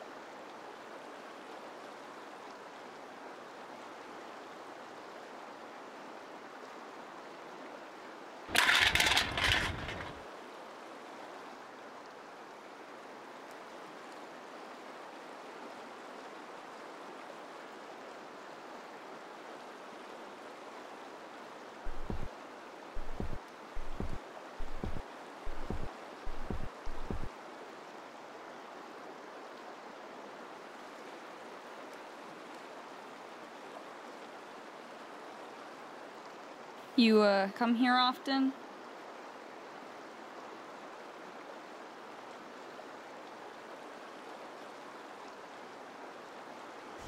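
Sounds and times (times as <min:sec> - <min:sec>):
boot footsteps on wooden bridge: 0:23.0 - 0:27.3.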